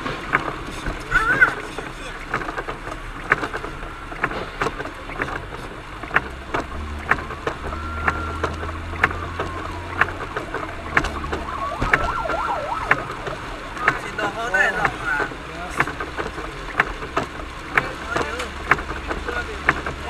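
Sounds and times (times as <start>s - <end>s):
rain ticking on windscreen: 0.0s - 20.0s
road noise: 0.0s - 20.0s
faint rising and falling tone: 6.4s - 14.1s.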